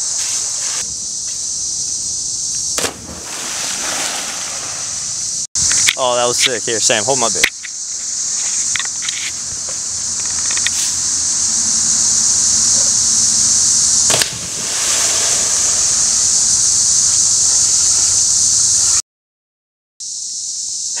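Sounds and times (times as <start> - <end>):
insects chorus: 0.0 - 19.0, 20.0 - 21.0
splash into water: 2.8 - 5.2, 14.1 - 16.0.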